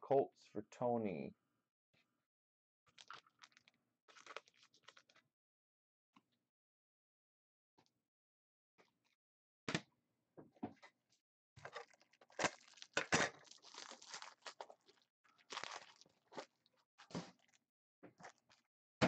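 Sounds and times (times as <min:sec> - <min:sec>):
foil pack tearing and crinkling: 0:11.6 - 0:16.1.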